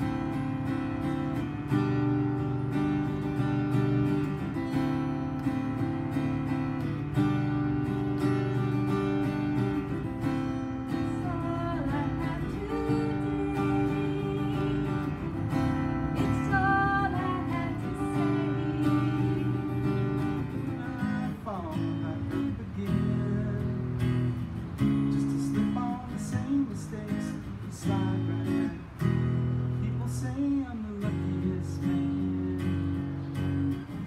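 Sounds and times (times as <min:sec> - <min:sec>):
acoustic guitars strumming: 0:00.0 - 0:34.0
person singing: 0:10.9 - 0:24.2.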